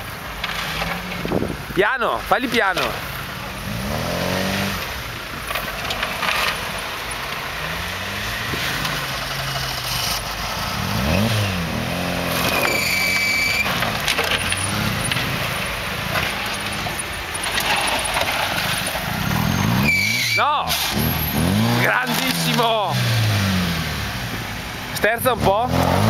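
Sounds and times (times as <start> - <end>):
car engine revving: 2.4 - 26.0
short high whistle: 12.6 - 13.7, 19.8 - 21.2.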